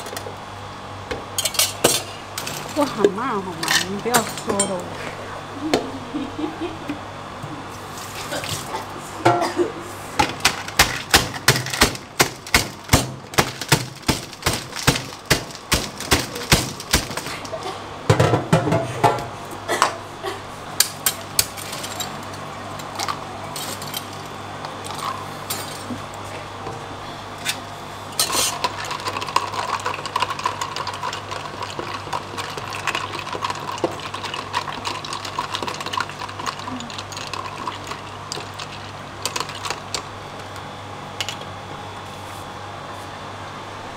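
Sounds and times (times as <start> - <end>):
ice being scooped: 28.2 - 40.0
ice rattling in plastic shaker: 28.5 - 40.0.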